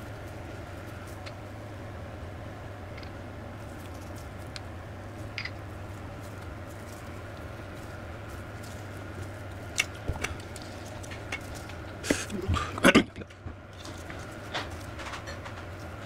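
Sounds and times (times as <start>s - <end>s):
steady low hum: 0.0s - 16.0s
metal parts knocking and scraping: 13.8s - 16.0s.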